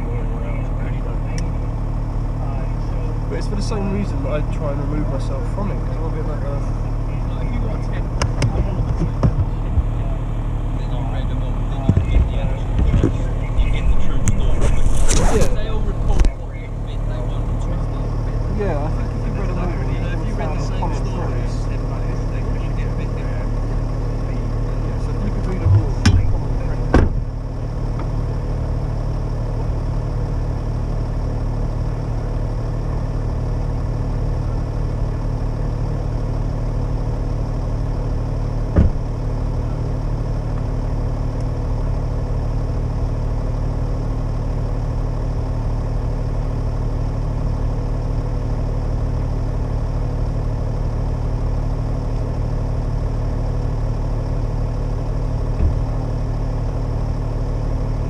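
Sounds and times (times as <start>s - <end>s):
low rumble: 0.0s - 45.3s
mechanical hum like idling engine: 0.0s - 58.0s.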